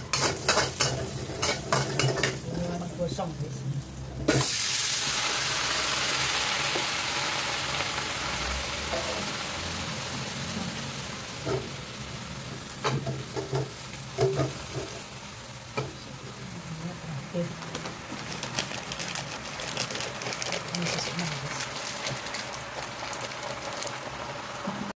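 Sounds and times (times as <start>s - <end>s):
metal spatula scraping a wok: 0.0s - 2.5s
vegetables sizzling in a wok: 0.0s - 24.9s.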